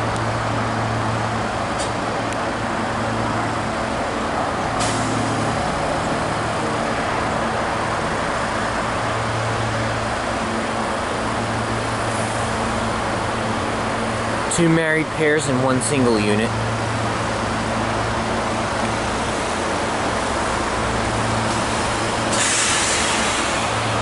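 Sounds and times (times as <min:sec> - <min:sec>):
train rumble with electric hum: 0:00.0 - 0:24.0.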